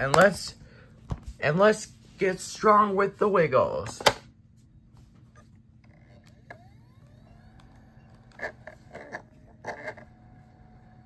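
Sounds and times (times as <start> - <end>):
disc drive spinning whine: 5.2 - 11.0.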